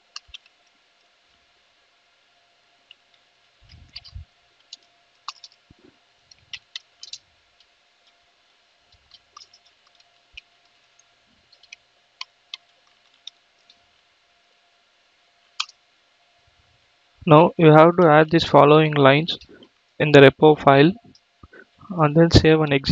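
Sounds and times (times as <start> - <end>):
faint steady hum: 0.0 - 22.9
keyboard keys clicking: 3.7 - 5.6, 8.9 - 10.5, 11.5 - 13.8, 15.6 - 15.8.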